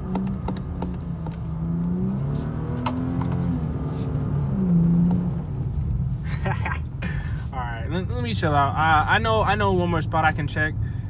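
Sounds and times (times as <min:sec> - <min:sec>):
car engine revving inside cabin: 0:00.0 - 0:07.0.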